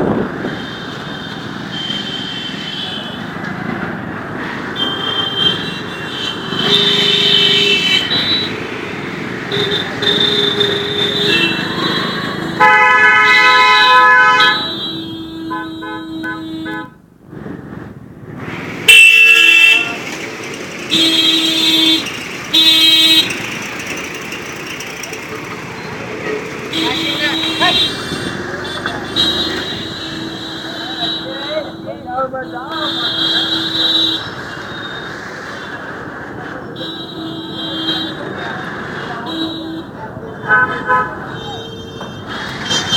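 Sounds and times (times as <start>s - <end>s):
engines and traffic noise: 0.0s - 42.9s
vehicle horns honking: 4.7s - 17.0s, 18.9s - 20.1s, 20.8s - 23.7s, 25.3s - 35.8s, 36.8s - 38.4s, 39.2s - 42.9s.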